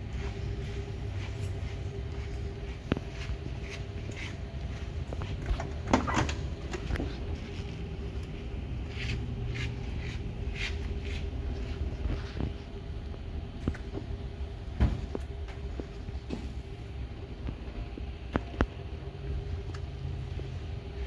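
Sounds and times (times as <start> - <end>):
soft scuffs: 0.0 - 5.8, 6.5 - 12.8
low background hum: 0.0 - 21.0.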